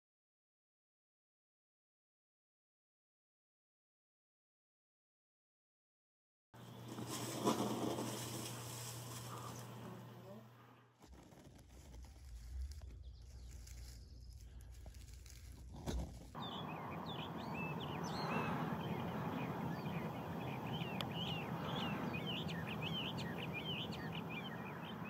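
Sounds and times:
bird singing varied notes: 16.3s - 25.0s.

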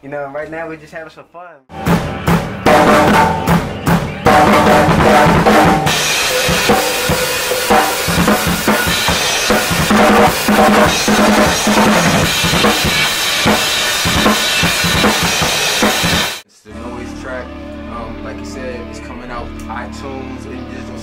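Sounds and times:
acoustic drum kit played hard: 1.7s - 16.4s.

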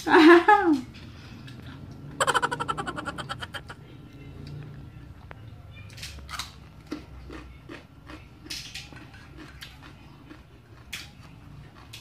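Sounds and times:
person chewing: 2.2s - 3.8s, 6.3s - 12.0s.

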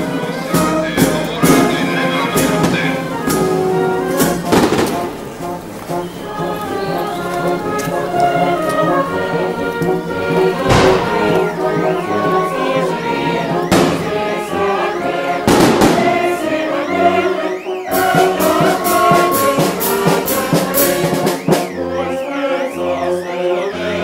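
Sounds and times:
brass band music: 0.0s - 24.0s
voices singing: 0.0s - 24.0s
sharp cracks: 4.1s - 9.9s, 10.5s - 12.1s.

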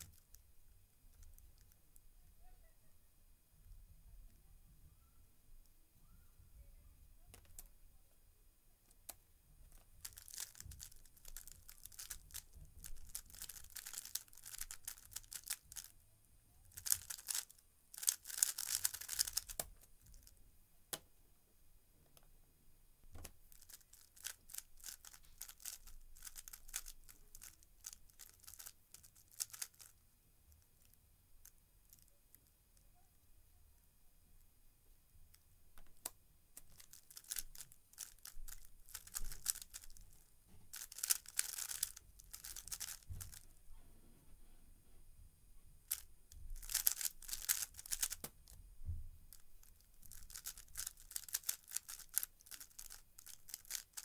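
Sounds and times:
puzzle cube clicking and rattling: 9.7s - 15.9s, 16.7s - 20.3s, 23.2s - 30.0s, 35.9s - 43.6s, 45.9s - 48.6s, 49.3s - 54.0s.

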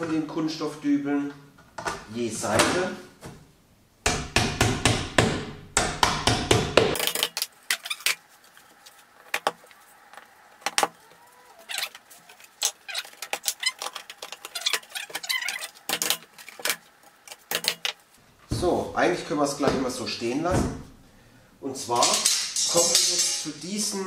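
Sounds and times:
hammer tapping dowels: 4.0s - 7.0s
small parts clicking and clattering: 6.9s - 18.2s, 22.0s - 23.6s.

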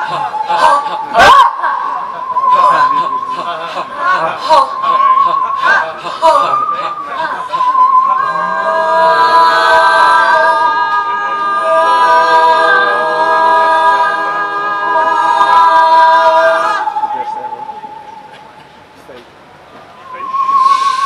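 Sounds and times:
choir singing unaccompanied: 0.0s - 18.6s.

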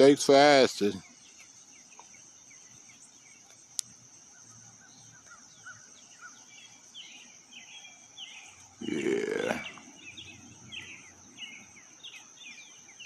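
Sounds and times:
birds chirping: 0.0s - 13.0s
high insect buzz: 0.0s - 13.0s.

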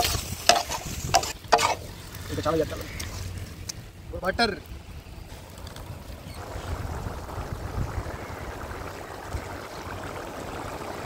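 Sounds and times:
vegetables frying in butter: 0.0s - 3.7s.

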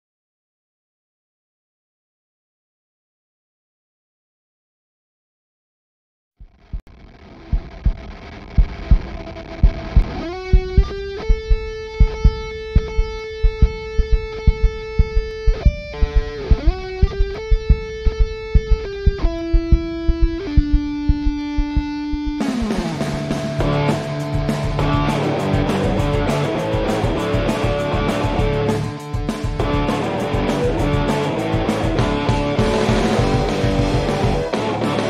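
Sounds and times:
steady drum beat: 7.5s - 35.0s
sliding lead melody: 9.8s - 35.0s.

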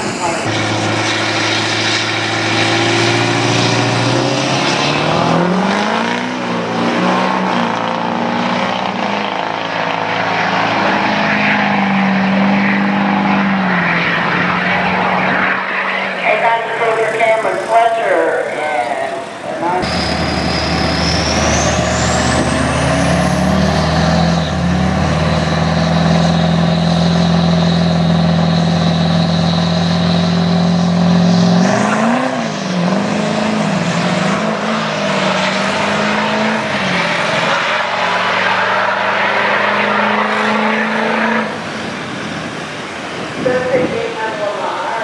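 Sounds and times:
diesel trucks revving: 0.0s - 45.0s.

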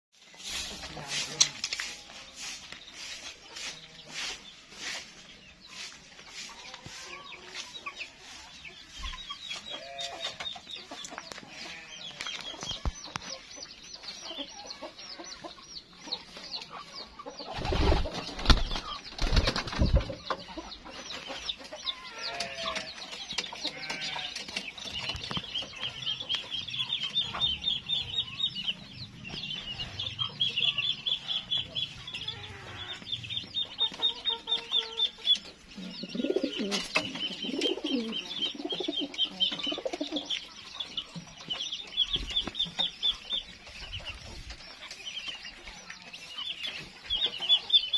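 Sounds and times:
birds chirping: 0.2s - 47.9s
chickens clucking: 0.2s - 47.9s
pigeons flapping wings: 17.5s - 20.2s.

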